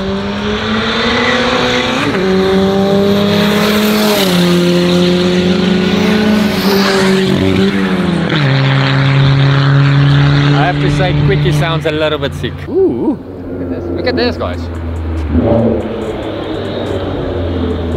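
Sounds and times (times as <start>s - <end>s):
drag racing car engines: 0.0s - 17.9s.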